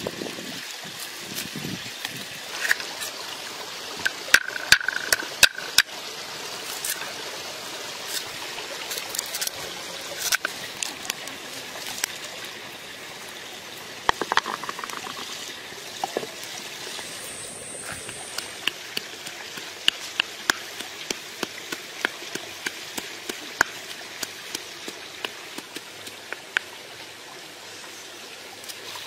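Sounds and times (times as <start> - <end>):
steady watery hiss: 0.0 - 29.0
clay pots and lid clinking: 14.1 - 15.4
cleaver chopping on wooden board: 18.0 - 25.8.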